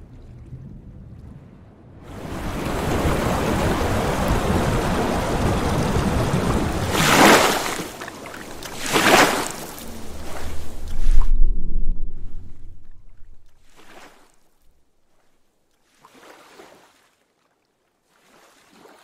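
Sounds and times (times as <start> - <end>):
swimmer splashing water: 2.0 - 11.3.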